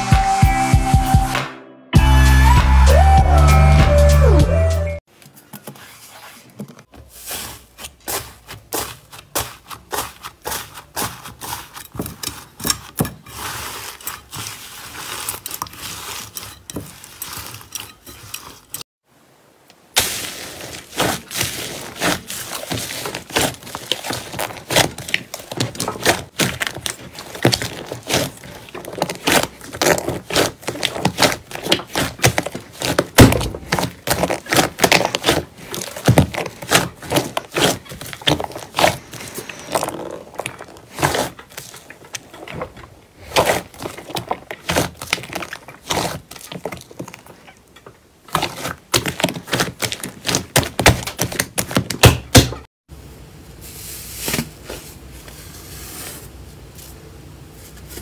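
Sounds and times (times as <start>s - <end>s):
grainy slime crackling: 7.1s - 18.9s, 19.8s - 52.0s.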